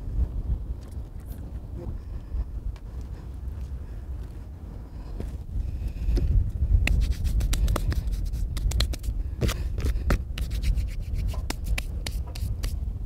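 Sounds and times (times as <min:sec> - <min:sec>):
wind buffeting microphone: 0:00.0 - 0:13.0
handling noise scratching and clicking: 0:06.8 - 0:12.8.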